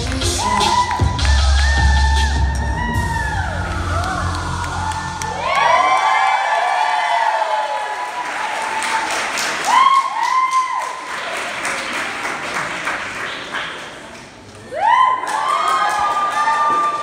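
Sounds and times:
audience applauding and cheering: 0.0s - 17.0s
loud whoops: 0.2s - 11.1s, 14.6s - 17.0s.

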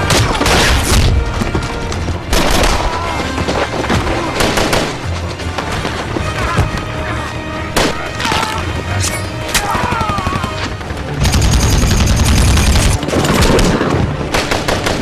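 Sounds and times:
film music score: 0.0s - 15.0s
machine-gun fire: 9.6s - 15.0s.

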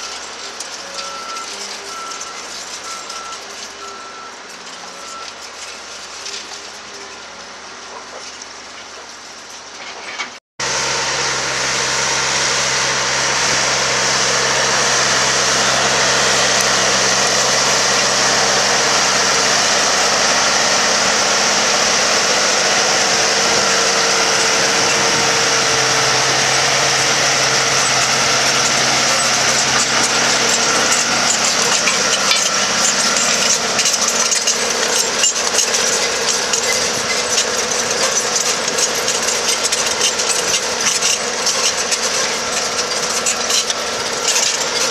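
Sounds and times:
tractor engine under load: 0.0s - 44.9s
dense crackling rattle: 21.1s - 44.9s.

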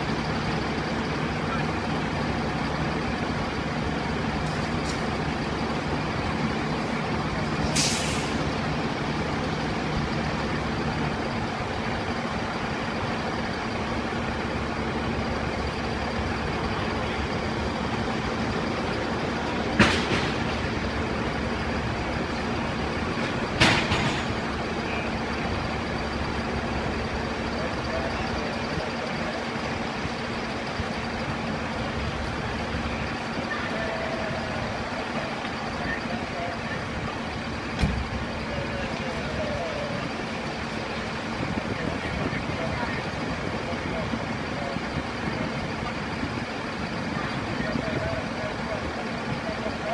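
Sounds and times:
diesel engine idling: 0.0s - 49.9s
air hissing bursts: 7.6s - 8.5s.

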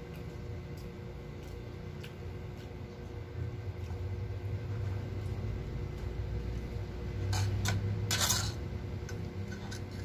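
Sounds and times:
steady low hum: 0.0s - 10.0s
fork scraping noodles: 7.4s - 8.6s, 9.4s - 10.0s.

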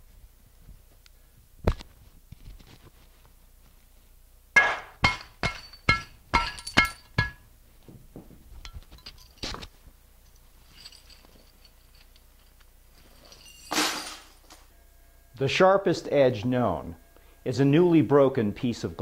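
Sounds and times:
glass jar smashing: 4.6s - 7.5s, 10.7s - 12.2s, 13.0s - 14.6s
glass shards tinkling: 5.0s - 7.4s, 8.8s - 9.5s, 10.3s - 14.6s.

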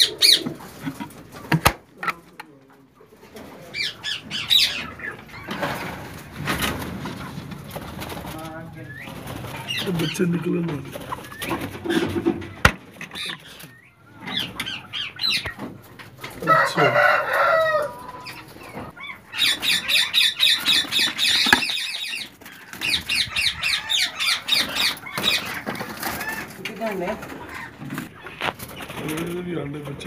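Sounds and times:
parakeets chattering chirps: 0.0s - 1.5s, 3.6s - 6.1s, 8.1s - 16.3s, 18.0s - 29.0s.

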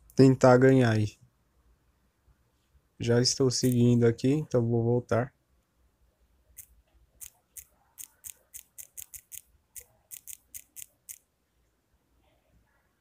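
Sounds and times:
phone keyboard typing clicks: 7.2s - 11.2s.

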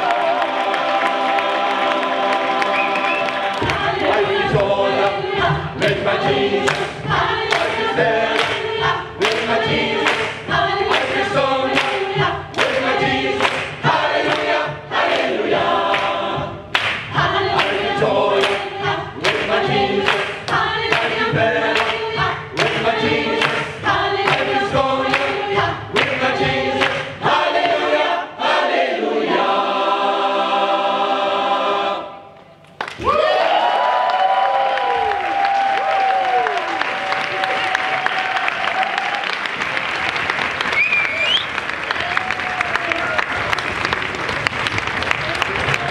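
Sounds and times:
choir singing in harmony: 0.0s - 32.6s
handclaps: 6.6s - 14.6s, 15.9s - 18.6s, 19.2s - 25.4s, 26.8s - 27.1s, 34.8s - 45.9s.

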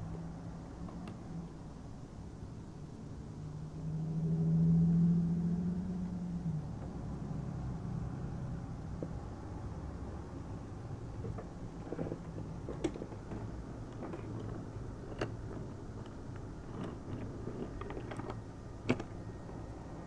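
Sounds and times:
toy train rumbling on wooden track: 10.8s - 20.0s
toy train clicking against track: 11.8s - 19.2s.

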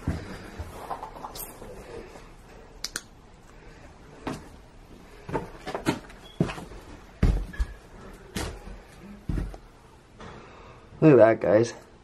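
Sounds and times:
footsteps on debris-covered stairs: 5.2s - 9.7s.

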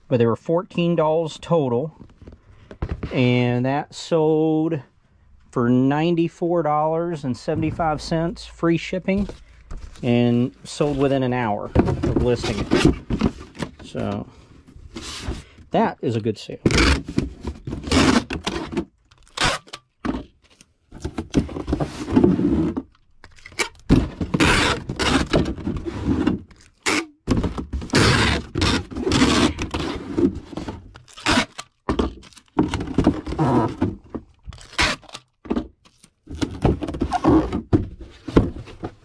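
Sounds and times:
items knocking in a box: 11.7s - 13.4s, 31.8s - 34.3s.

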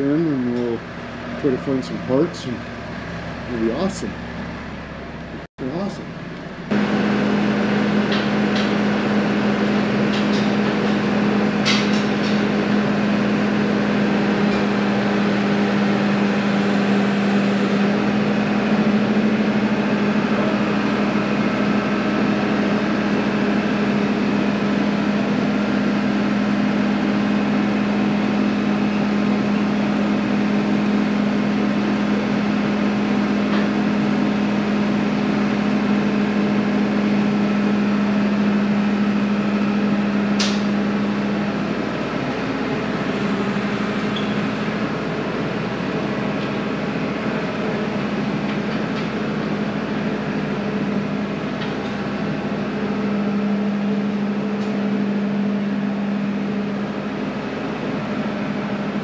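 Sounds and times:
engine running: 0.0s - 59.0s.

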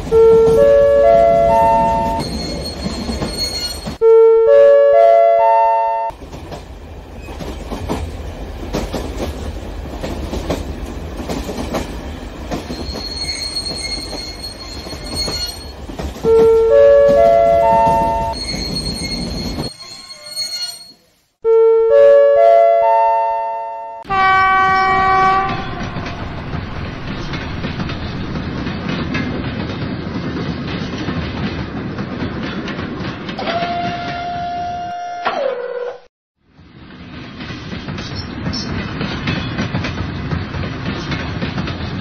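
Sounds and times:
train rumbling along track: 0.0s - 4.1s, 6.1s - 20.6s, 24.1s - 34.9s, 36.4s - 42.0s
high wheel squeal: 2.0s - 4.0s, 12.7s - 15.8s, 18.0s - 21.1s.

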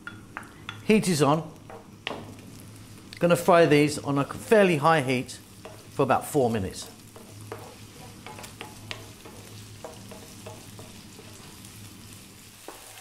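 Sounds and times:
onions sizzling in oil: 0.0s - 13.0s
wooden spoon tapping and scraping pan: 5.6s - 5.9s, 6.8s - 11.5s, 12.6s - 13.0s.

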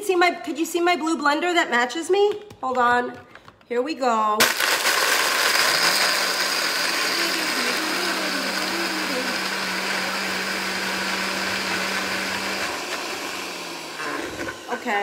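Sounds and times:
blender crushing ice: 4.4s - 15.0s.

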